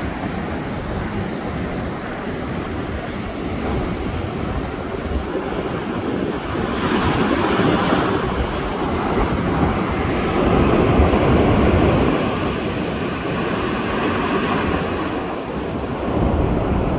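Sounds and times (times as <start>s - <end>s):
ocean surf breaking: 0.0s - 16.9s
wind buffeting microphone: 0.0s - 16.9s.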